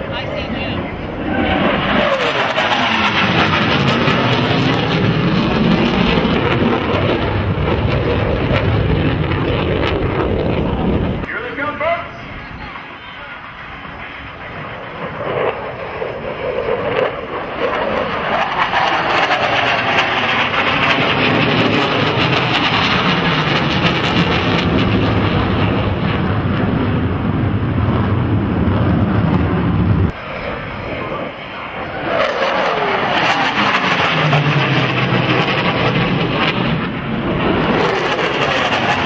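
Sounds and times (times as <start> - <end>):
jet engine noise: 0.0 - 39.0
jet passing by: 0.0 - 39.0.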